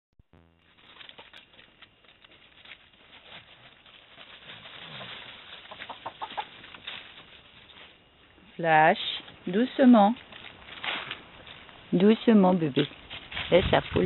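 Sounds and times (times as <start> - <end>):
scuffling in dry leaves: 0.7 - 8.1, 10.1 - 14.0
hen clucking and squawking: 5.5 - 6.6.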